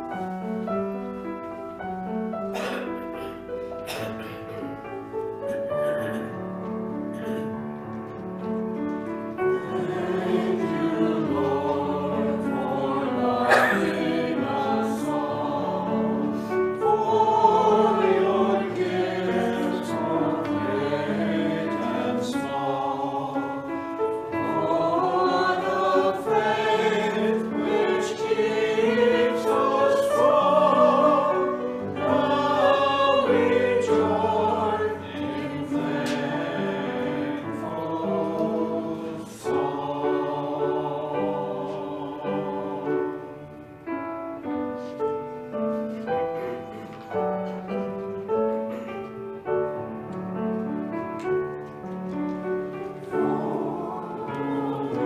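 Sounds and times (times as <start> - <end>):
piano accompaniment: 0.0 - 55.0
mixed choir singing an anthem: 9.4 - 43.6, 52.9 - 55.0.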